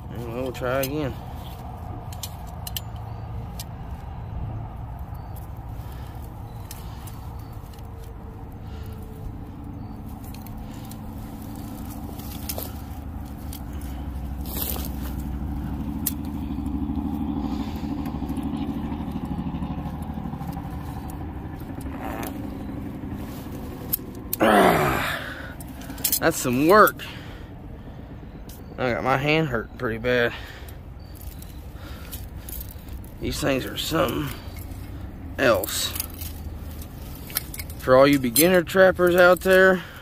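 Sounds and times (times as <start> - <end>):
trap handling scraping and rustling: 0.0 - 27.1, 30.3 - 40.0
strained vocal sound: 24.4 - 25.6.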